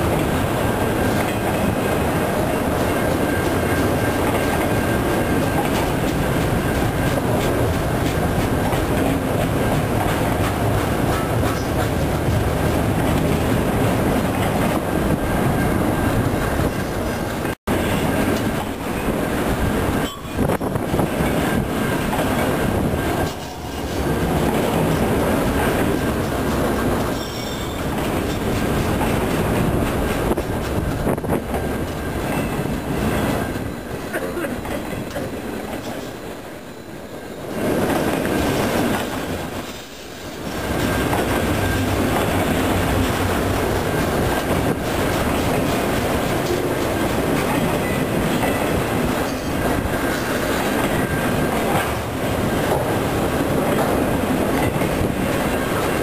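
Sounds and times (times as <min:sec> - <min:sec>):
train wheels clattering on rails: 0:00.0 - 0:56.0.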